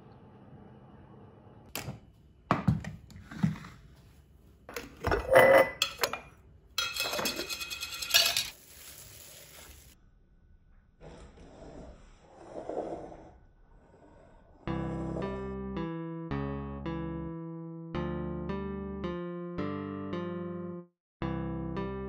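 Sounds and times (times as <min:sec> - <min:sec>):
glass jars and lids clinking: 0:04.7 - 0:08.6
jars scraping on marble: 0:05.0 - 0:08.6.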